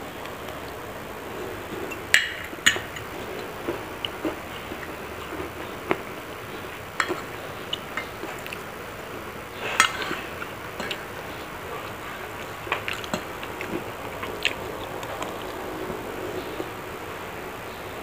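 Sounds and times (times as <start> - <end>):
soft chewing: 0.1 - 17.0
cutlery clinking on ceramic plate: 7.0 - 7.3, 9.8 - 11.0.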